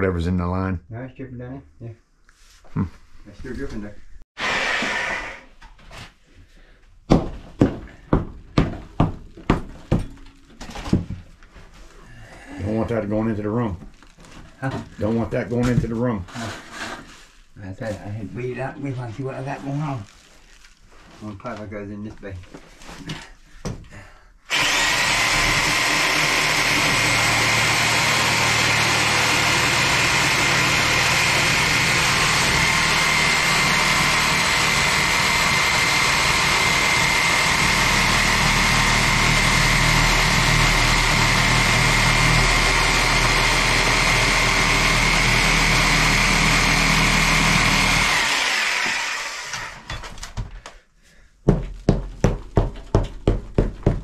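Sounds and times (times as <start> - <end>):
reciprocating saw cutting: 4.4 - 5.5, 24.5 - 49.9.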